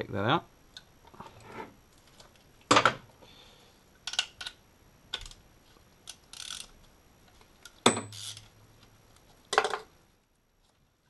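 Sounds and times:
ratchet metallic clicks: 6.1s - 6.7s.

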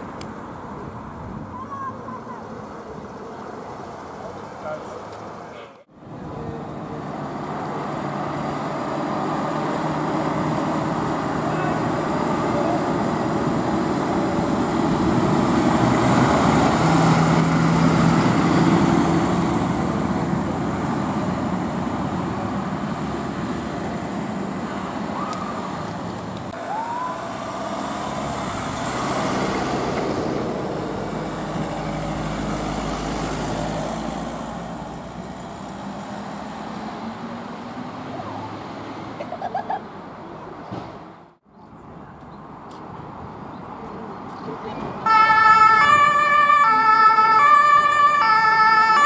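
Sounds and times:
diesel trucks driving past: 0.0s - 49.0s
traffic noise: 0.0s - 49.0s.

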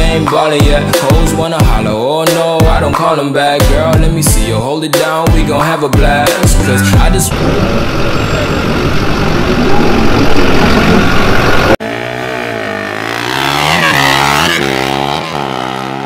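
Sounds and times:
truck engine rumbling in burnout: 5.5s - 16.0s
quad engine revving through gears: 6.0s - 16.0s.

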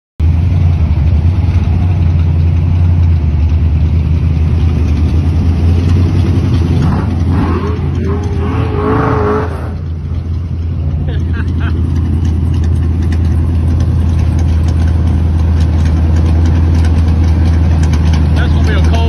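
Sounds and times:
car engines exhaust rumble: 0.2s - 19.0s
rising high tone: 6.8s - 10.1s.

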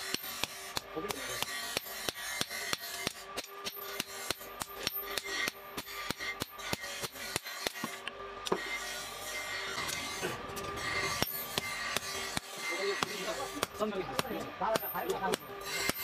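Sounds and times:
hammer striking steel on anvil: 0.0s - 8.9s, 9.7s - 16.0s
anvil ringing: 10.8s - 16.0s.

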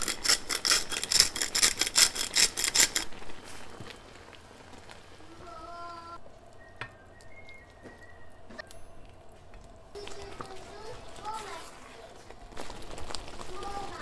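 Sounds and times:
salt scratching into pan: 0.0s - 3.7s
ladle stirring: 0.0s - 3.9s
pan simmering: 0.0s - 14.0s.

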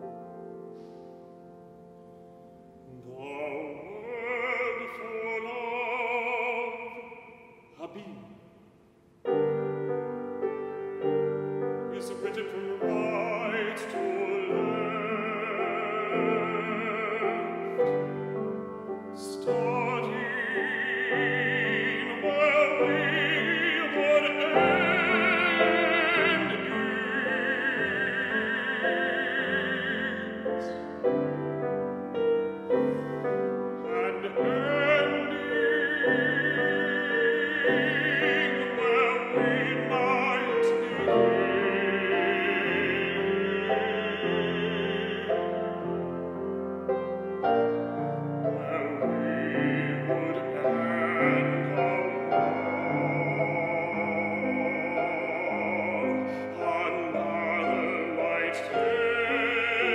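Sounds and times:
grand piano accompaniment: 0.0s - 59.9s
bass-baritone singing with vibrato: 2.8s - 8.6s, 9.3s - 32.0s, 32.6s - 59.9s.

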